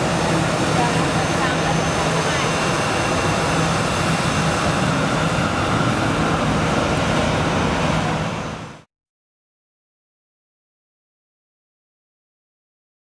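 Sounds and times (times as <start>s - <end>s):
jet engines roaring: 0.0s - 8.9s.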